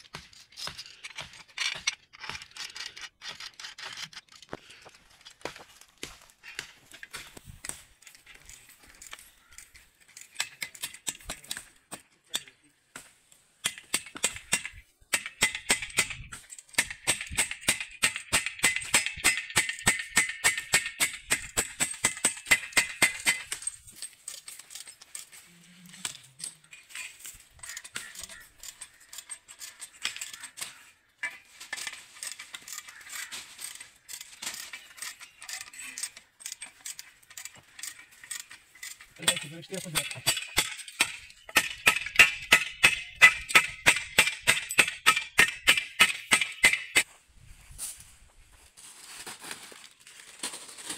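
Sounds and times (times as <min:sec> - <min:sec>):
spanner clinking on nut: 0:31.8 - 0:47.0
hammer striking metal bolt: 0:40.0 - 0:47.0.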